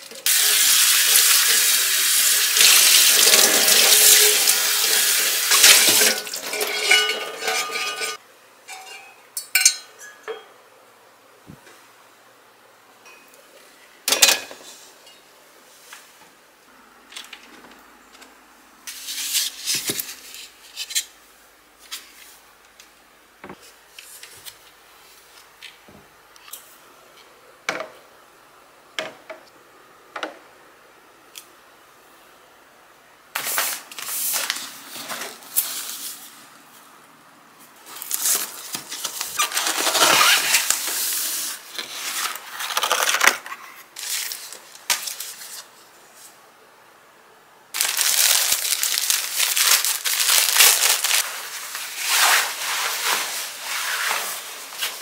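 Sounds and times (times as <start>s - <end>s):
items handled on shelves: 5.5s - 10.6s, 17.0s - 28.2s, 33.4s - 46.5s, 47.8s - 55.0s
packaging rustling and crinkling: 37.8s - 45.7s, 47.8s - 55.0s.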